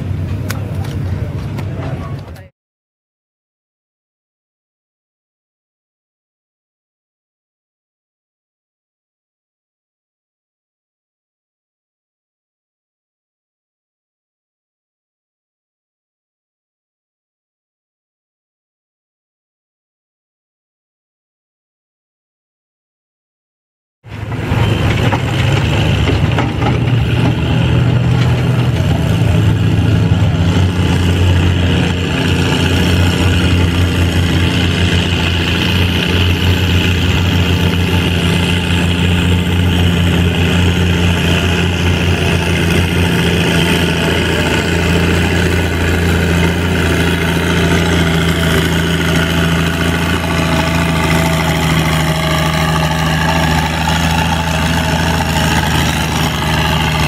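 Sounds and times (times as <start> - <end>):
tractor engine under heavy load: 0.0 - 2.5, 24.0 - 57.0.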